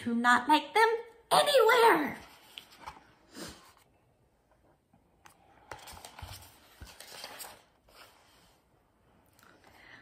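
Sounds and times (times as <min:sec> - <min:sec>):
book pages rustling: 0:02.2 - 0:03.9, 0:05.3 - 0:08.7.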